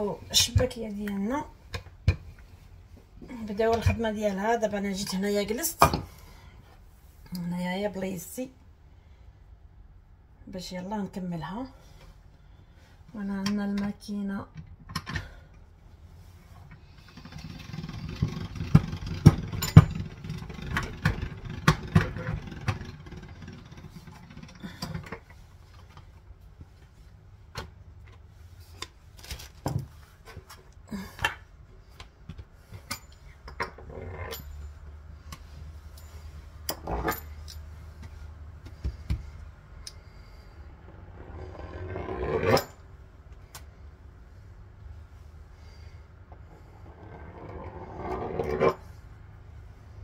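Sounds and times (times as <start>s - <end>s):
pasta machine humming: 16.9s - 25.1s.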